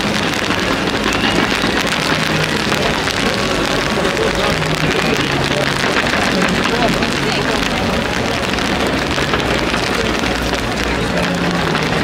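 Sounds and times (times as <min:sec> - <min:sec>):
fireworks crackling and popping: 0:00.0 - 0:12.0.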